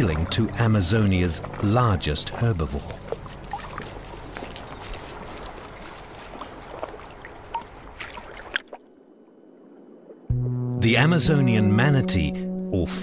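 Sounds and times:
water sloshing and trickling: 0.0s - 10.3s.

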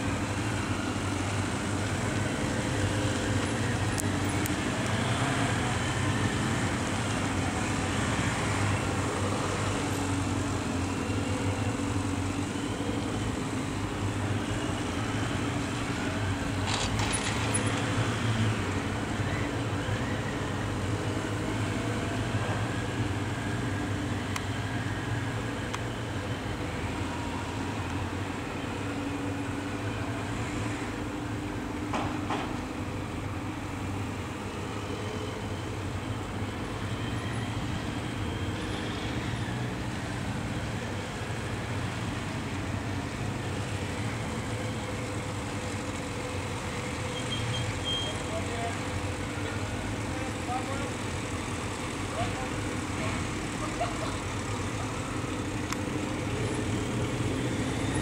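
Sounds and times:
motorcycle engines at low speed: 0.0s - 26.6s.

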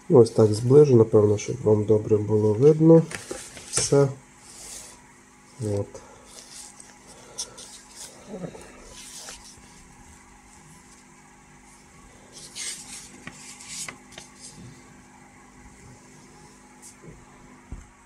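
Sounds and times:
paper pages rustling: 3.0s - 5.0s, 5.7s - 11.1s, 11.7s - 14.6s.

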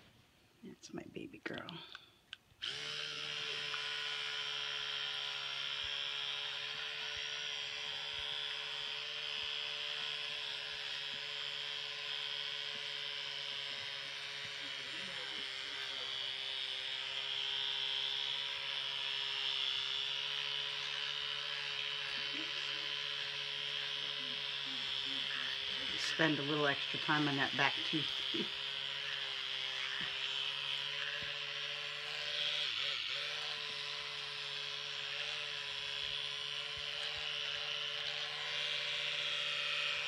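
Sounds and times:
electric toothbrush humming: 0.0s - 40.0s.

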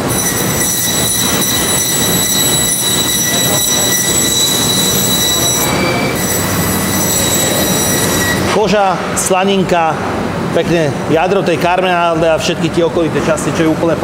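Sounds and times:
machinery high-pitched whine: 0.0s - 9.7s
low machinery hum: 0.0s - 14.0s.

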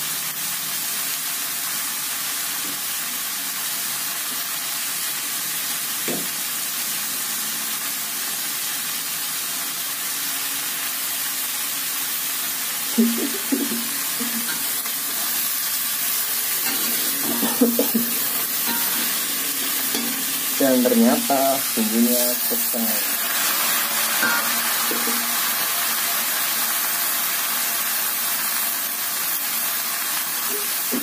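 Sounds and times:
greens sizzling in a wok: 0.0s - 31.0s
metal spatula scraping a wok: 14.2s - 21.2s, 22.4s - 25.3s.

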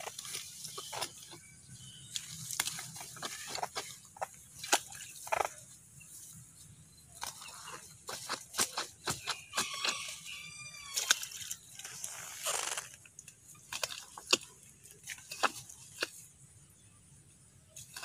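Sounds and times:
soil knocks and crunches: 0.0s - 16.9s, 17.8s - 18.0s
soil scraping: 0.0s - 16.9s, 17.7s - 18.0s
rooster crowing: 9.5s - 11.1s.

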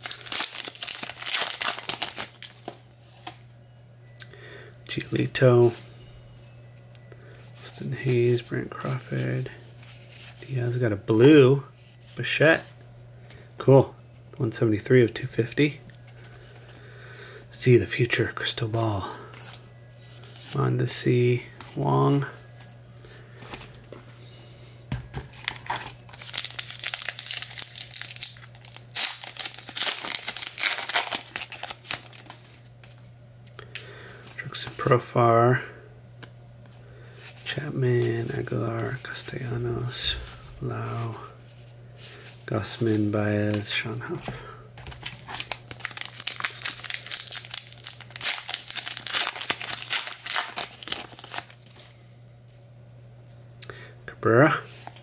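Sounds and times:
wrapper crinkling and tearing: 0.0s - 3.4s, 25.3s - 33.0s, 44.8s - 51.9s.

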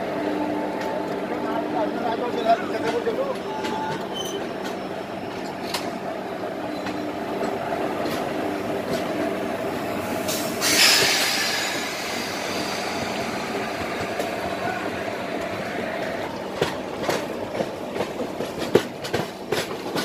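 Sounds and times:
train wheels rumbling on rails: 0.0s - 20.0s
loud hissing rush: 9.6s - 15.2s.

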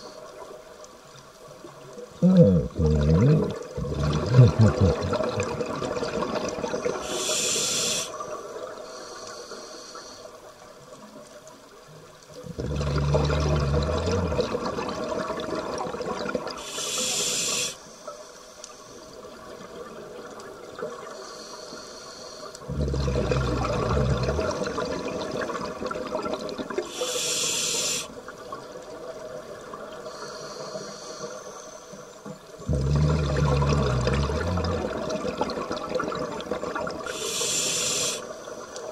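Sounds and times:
underwater bubbling exhalation: 2.2s - 8.1s, 12.4s - 17.8s, 22.6s - 28.2s, 32.6s - 38.4s
regulator air hiss: 6.9s - 8.2s, 16.6s - 19.0s, 26.9s - 28.2s, 37.1s - 38.5s.

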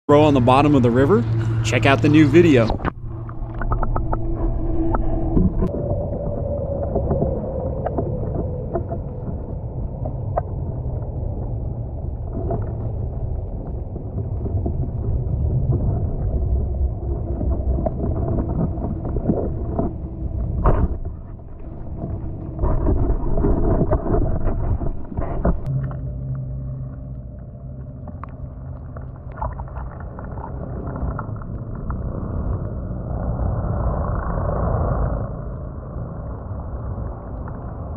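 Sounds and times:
underwater river rumble: 0.1s - 37.9s.

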